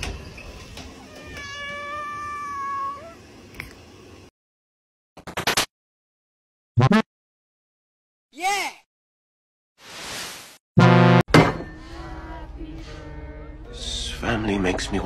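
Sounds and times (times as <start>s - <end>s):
cat yowling: 1.1s - 3.2s.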